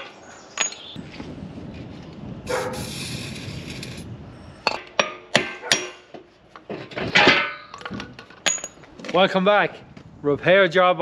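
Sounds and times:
ringing metal clang: 0:00.0 - 0:01.0, 0:04.6 - 0:06.1, 0:07.1 - 0:08.8
hiss: 0:02.7 - 0:04.0.

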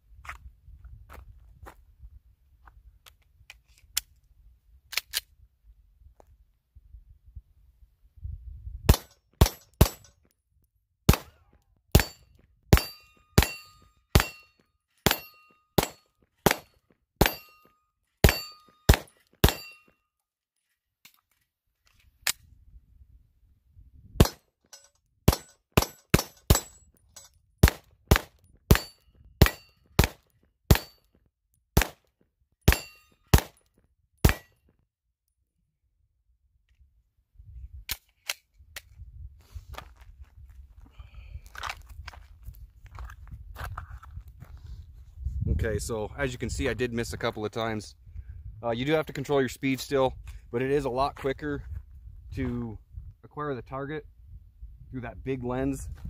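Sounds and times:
pistol shots: 0:08.9 - 0:10.1, 0:11.1 - 0:11.4, 0:12.0 - 0:14.4, 0:15.0 - 0:17.4, 0:18.2 - 0:19.7, 0:24.2 - 0:24.4, 0:27.6 - 0:31.0, 0:31.8 - 0:32.0, 0:32.7 - 0:33.6, 0:34.2 - 0:34.5
steel targets ringing: 0:12.8 - 0:19.9, 0:32.7 - 0:33.2.

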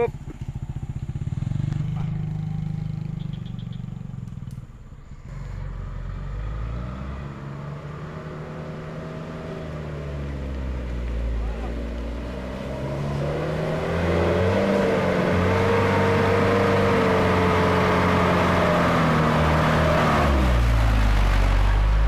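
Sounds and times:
engine running close by: 0:00.0 - 0:22.0
diesel truck engine labouring: 0:04.9 - 0:22.0.

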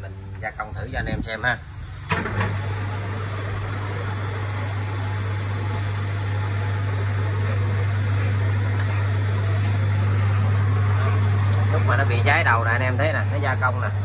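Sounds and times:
lathe motor hum: 0:02.1 - 0:14.0.

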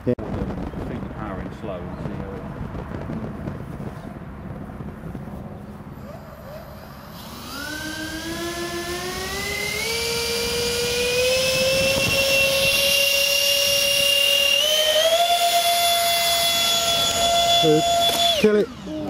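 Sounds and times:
model aircraft engines whining: 0:01.3 - 0:19.0.

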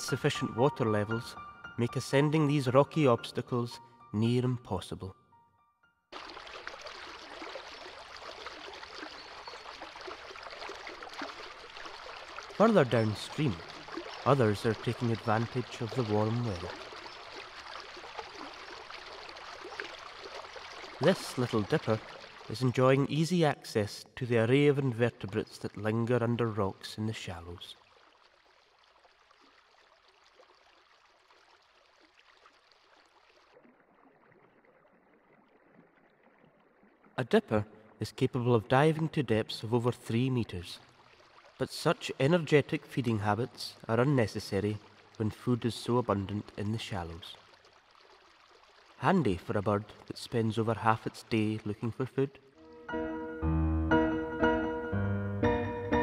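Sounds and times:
small water splashes: 0:06.1 - 0:22.8, 0:27.7 - 0:38.0, 0:40.8 - 0:43.1, 0:43.8 - 0:52.6
faint river water hissing: 0:06.2 - 0:22.7, 0:40.8 - 0:42.1, 0:43.6 - 0:46.0, 0:46.6 - 0:50.2.

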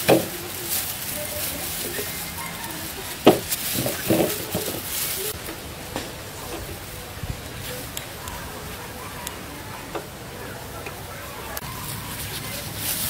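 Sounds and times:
gloved hands rustling: 0:00.0 - 0:08.2, 0:11.6 - 0:13.0.

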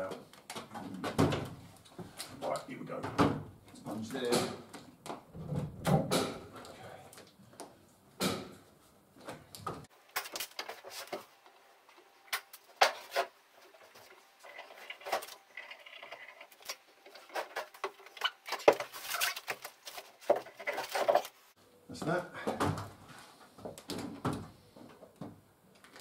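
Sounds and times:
wooden knocks and scrapes: 0:12.8 - 0:21.4.

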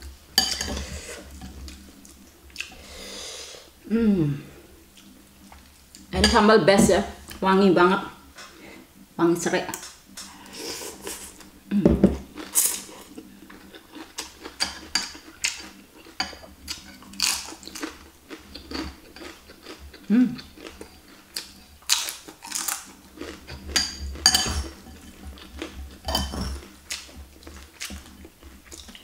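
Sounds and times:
chewing and crunching: 0:12.3 - 0:29.0.

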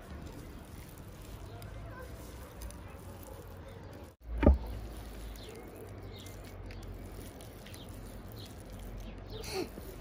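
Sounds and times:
sharp thump: 0:04.3 - 0:04.7.

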